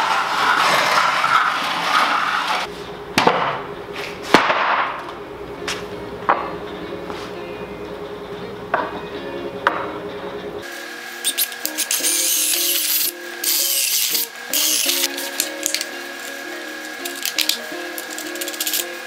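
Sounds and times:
wooden pallet scraping on concrete: 0:00.0 - 0:02.7.

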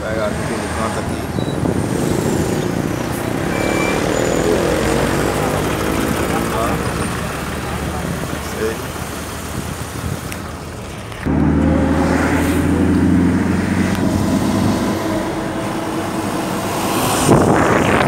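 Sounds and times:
car engine and road noise: 0:00.0 - 0:18.0
passing traffic rush: 0:00.0 - 0:18.0
loud engine drone: 0:01.9 - 0:09.0, 0:11.2 - 0:18.0.

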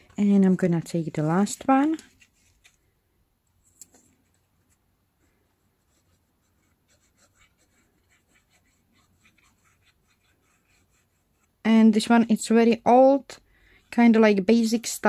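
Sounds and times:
glue bottle nozzle scratching paper: 0:06.0 - 0:11.6.

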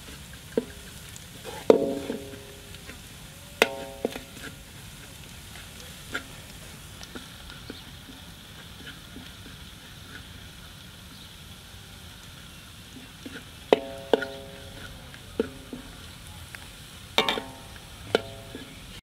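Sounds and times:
food sizzling in a wok: 0:00.0 - 0:19.0
metal spatula scraping pan: 0:01.4 - 0:02.7, 0:13.3 - 0:15.5, 0:17.2 - 0:18.8
spatula striking wok ringing: 0:01.7 - 0:02.7, 0:03.6 - 0:04.4, 0:13.7 - 0:14.8, 0:17.2 - 0:18.6.

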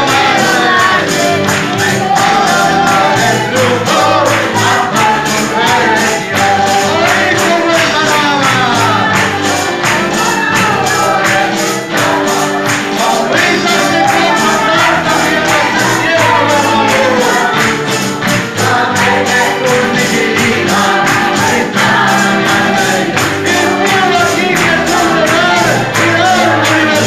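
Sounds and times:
congregation singing: 0:00.0 - 0:27.0
man leading song on microphone: 0:00.0 - 0:27.0
steady beat: 0:00.0 - 0:27.0.

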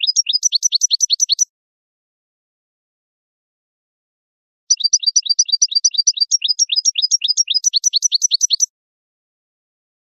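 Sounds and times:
goldfinch singing: 0:00.0 - 0:01.5, 0:04.7 - 0:08.7.

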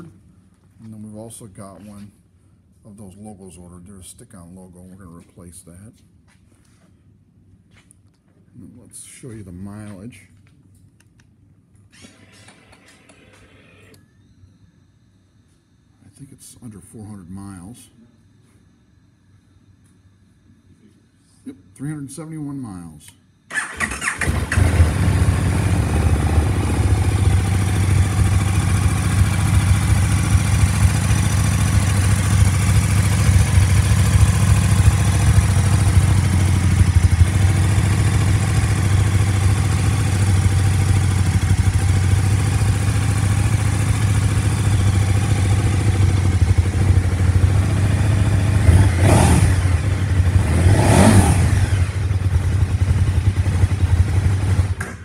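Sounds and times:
motorcycle engine starting and idling: 0:23.5 - 0:55.0.

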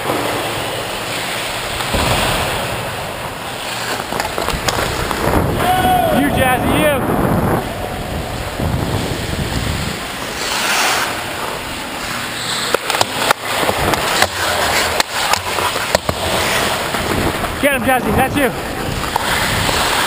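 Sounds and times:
skate blades scraping ice: 0:00.0 - 0:05.8, 0:08.4 - 0:20.0
sticks and puck clacking: 0:03.3 - 0:05.8, 0:08.4 - 0:20.0
wind rush: 0:04.4 - 0:10.4
skate stop spraying ice: 0:08.9 - 0:20.0.

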